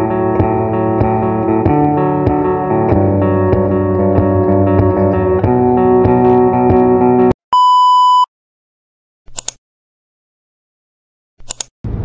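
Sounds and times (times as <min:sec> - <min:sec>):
guitar background music: 0:00.0 - 0:07.4
electronic beep: 0:07.5 - 0:08.3
mouse clicks: 0:09.3 - 0:09.6, 0:11.4 - 0:11.7.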